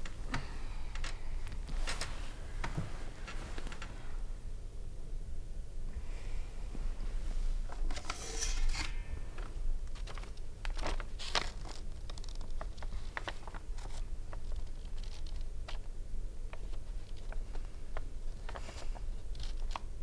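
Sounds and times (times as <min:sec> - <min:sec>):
paper rustling and crackling: 0:07.6 - 0:20.0.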